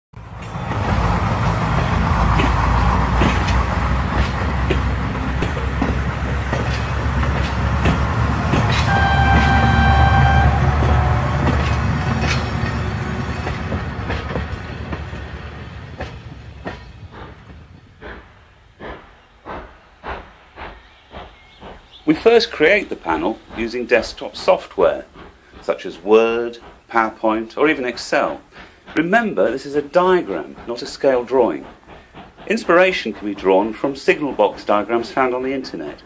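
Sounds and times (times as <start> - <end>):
steam train chuffs: 0.2 - 36.0
steam train rumble: 0.2 - 36.0
wheels clicking over rail joints: 0.2 - 36.0
train whistle blast: 8.7 - 11.9.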